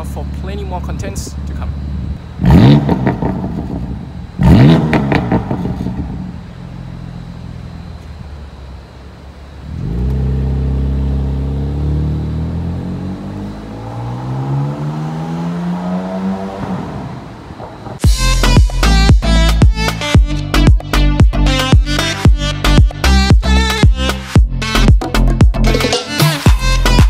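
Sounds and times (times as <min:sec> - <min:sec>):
exhaust crackles: 0:00.1 - 0:18.0
car engine revving and accelerating: 0:02.3 - 0:06.4, 0:09.6 - 0:17.9.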